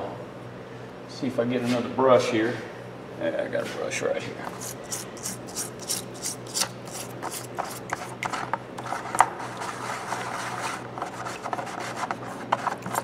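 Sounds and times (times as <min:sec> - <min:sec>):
stiff brush scrubbing metal: 0:04.5 - 0:13.0.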